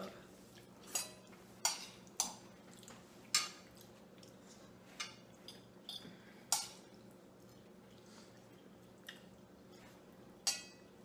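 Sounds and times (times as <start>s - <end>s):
forks clinking on plates: 0.8s - 2.4s, 10.4s - 10.9s.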